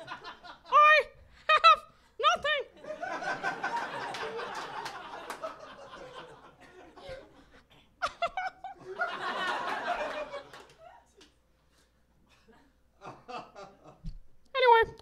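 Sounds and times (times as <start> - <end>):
audience laughing: 0.0 - 0.8, 2.8 - 11.2.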